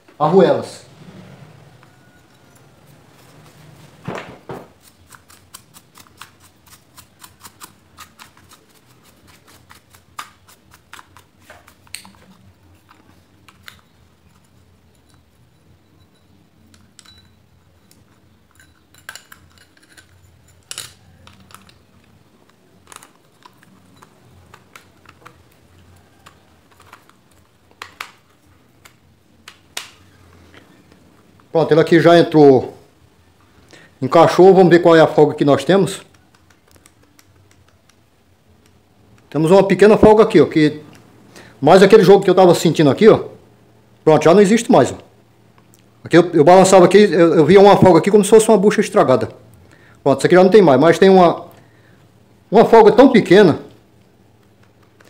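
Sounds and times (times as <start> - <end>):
small metal parts clicking: 16.7 - 21.8.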